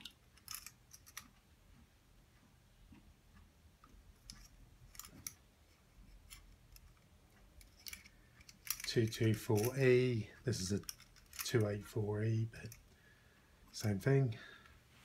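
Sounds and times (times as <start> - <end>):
clicks of small objects handled: 0.0 - 1.4, 3.8 - 11.8.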